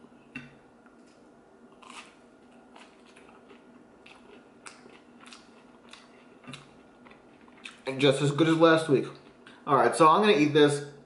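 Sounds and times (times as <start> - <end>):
faint chewing crunches: 0.8 - 7.9.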